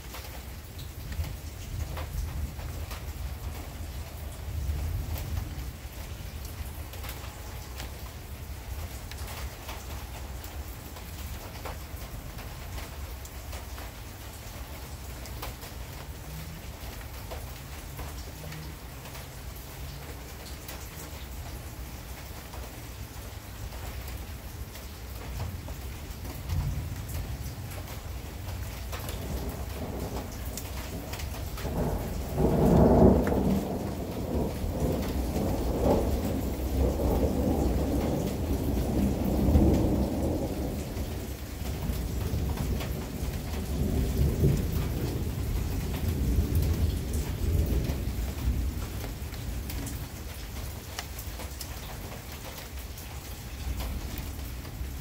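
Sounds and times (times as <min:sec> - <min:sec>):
rain pattering: 0:00.0 - 0:55.0
rolling thunder: 0:29.0 - 0:50.4.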